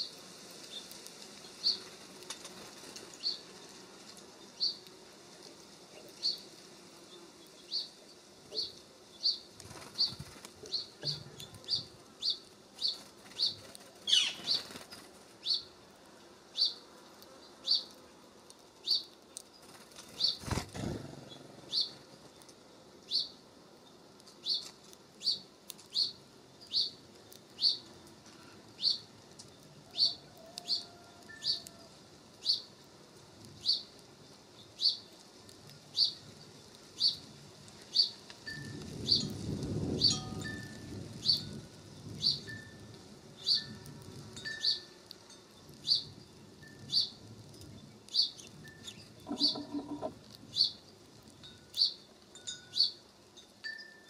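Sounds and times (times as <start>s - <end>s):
wings fluttering: 0.0s - 4.3s, 9.5s - 15.7s, 18.8s - 22.6s, 48.4s - 50.6s
songbird chirping: 45.6s - 53.0s.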